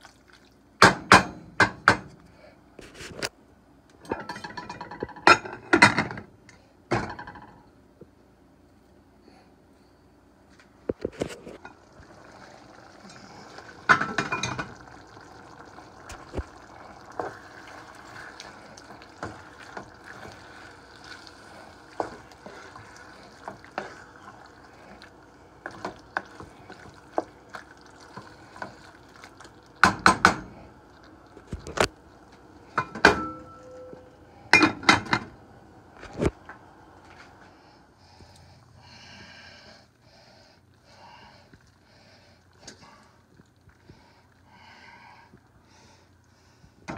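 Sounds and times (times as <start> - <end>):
cookware clattering: 4.0 - 6.2, 13.9 - 14.8, 32.8 - 33.9, 34.5 - 35.3.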